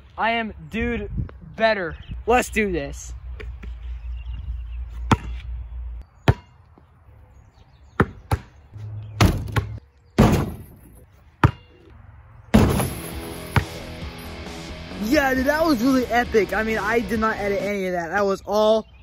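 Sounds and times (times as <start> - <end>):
basketball thudding on hard surface: 8.0 - 8.5, 9.2 - 10.7.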